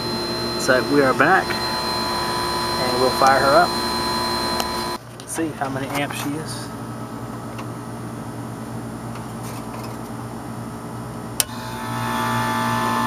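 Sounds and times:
low hum: 0.0s - 5.0s
compressor hum and whine: 0.0s - 13.0s
contactor click: 11.4s - 11.6s.

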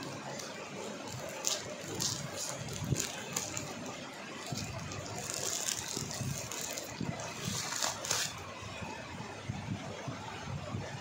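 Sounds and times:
plastic bag crinkling: 0.0s - 8.4s
scissors cutting plastic: 0.0s - 8.5s.

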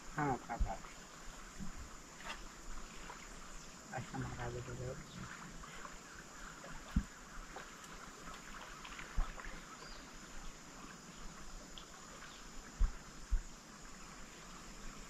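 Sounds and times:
steady hiss: 0.0s - 15.0s
dull low thumps: 12.8s - 13.5s.

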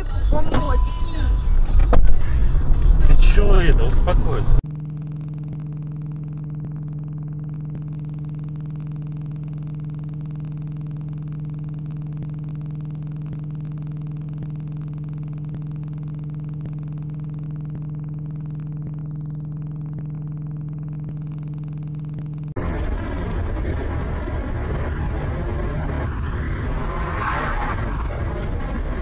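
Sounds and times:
steady electrical hum: 0.0s - 29.0s.

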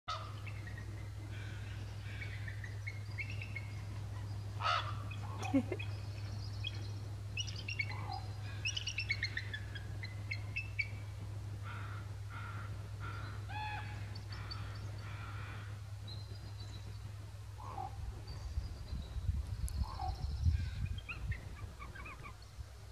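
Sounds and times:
steady low hum: 0.1s - 22.9s
eagle short repeated calls: 4.1s - 5.5s.

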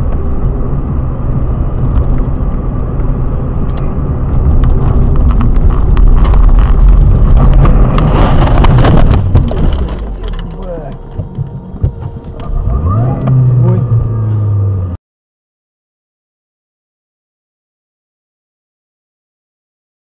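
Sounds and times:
car engine and tyre rumble: 0.0s - 15.0s
knocks and rattles: 3.8s - 12.4s
car ploughing into snow: 5.9s - 11.7s.

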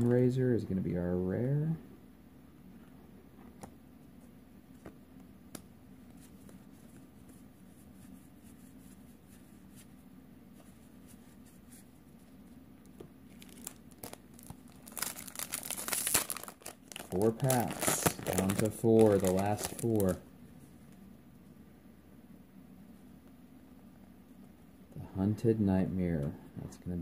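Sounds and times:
low steady hum: 0.0s - 27.0s
foil wrapper crinkling: 13.3s - 20.2s.

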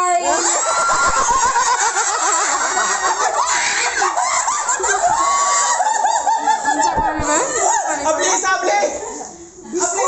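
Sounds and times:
people shrieking and laughing: 0.2s - 8.1s.

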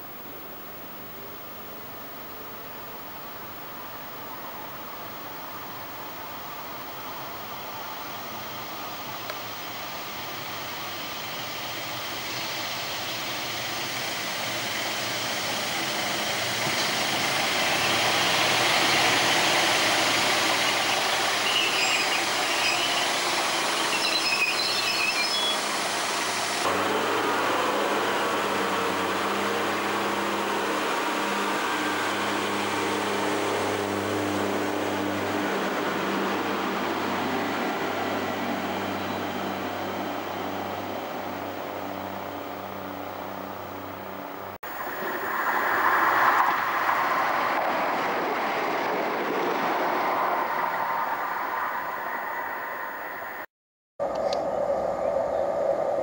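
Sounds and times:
diesel railcar engine running: 4.1s - 54.6s
train wheel and track noise: 4.4s - 54.5s
high wheel squeals: 15.9s - 40.4s.

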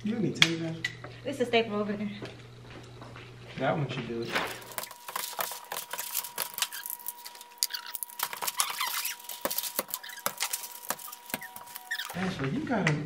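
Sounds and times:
paper crinkling and rustling: 4.2s - 12.4s.

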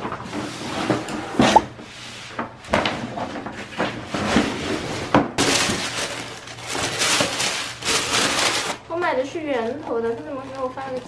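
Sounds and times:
packaging rustling: 5.4s - 8.8s.

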